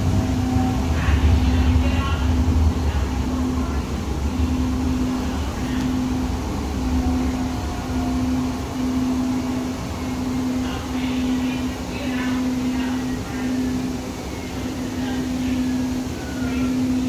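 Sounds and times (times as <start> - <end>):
rail car rolling rumble: 0.0 - 17.0
steady hum: 0.0 - 17.0.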